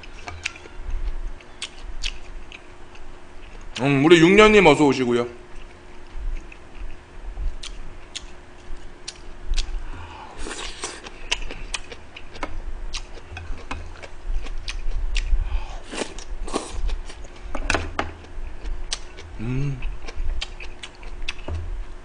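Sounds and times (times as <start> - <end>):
wet chewing: 0.0 - 3.8, 7.6 - 9.8, 10.4 - 17.6, 18.2 - 21.5
faint steady hum: 0.0 - 22.0.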